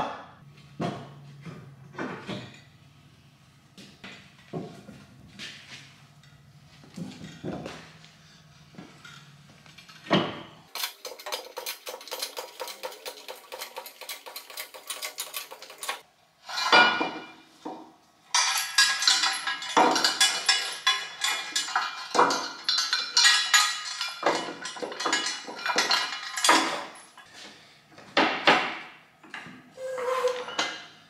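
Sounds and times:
steel frame clanking: 8.8s - 17.4s, 18.3s - 27.3s.

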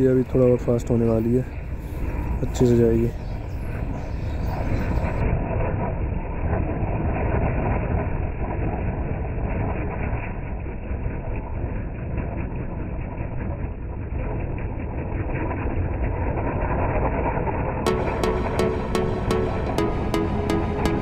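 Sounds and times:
spinning firecracker rushing and crackling: 4.5s - 17.8s.

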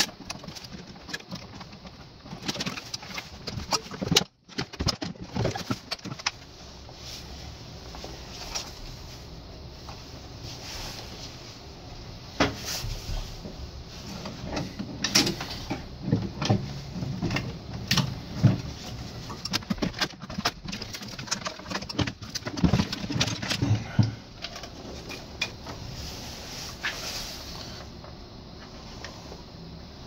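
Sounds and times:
plastic and metal parts knocking: 0.0s - 6.4s, 14.5s - 25.6s.

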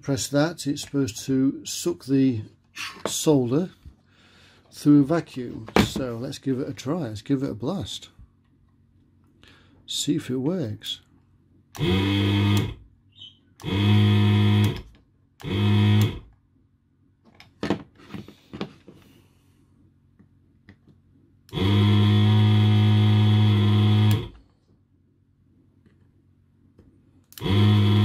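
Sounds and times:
vacuum pump buzzing: 11.7s - 12.9s, 13.6s - 16.4s, 21.5s - 24.5s, 27.3s - 28.0s.

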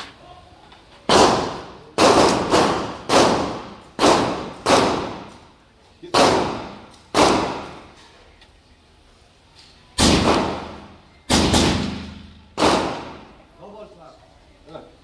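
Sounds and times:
rifle shots with echo: 1.1s - 5.4s, 6.1s - 7.9s, 10.0s - 13.4s.

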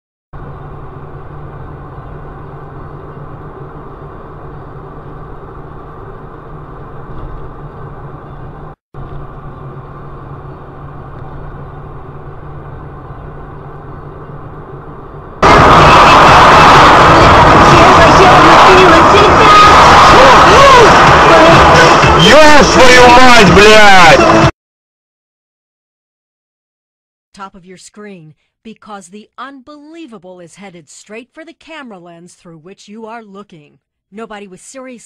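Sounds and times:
engine drone and road noise: 0.4s - 24.5s.

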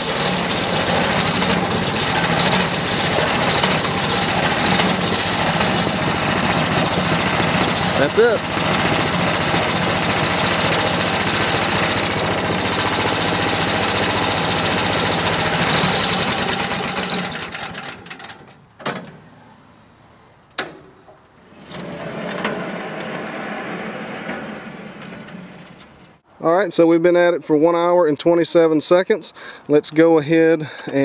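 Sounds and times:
sawmill gasoline engine running: 0.0s - 18.4s.

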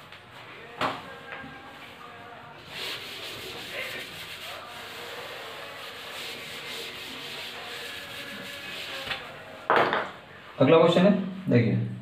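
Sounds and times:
duster scrubbing chalkboard: 2.0s - 9.6s.

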